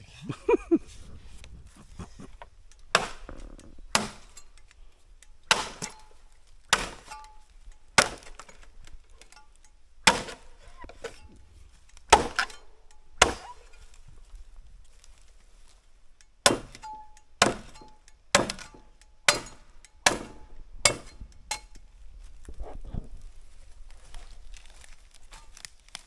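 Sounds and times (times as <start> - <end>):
machete chopping bamboo: 2.9 - 4.5, 5.4 - 9.4, 10.0 - 11.3, 12.0 - 13.8, 16.4 - 21.7.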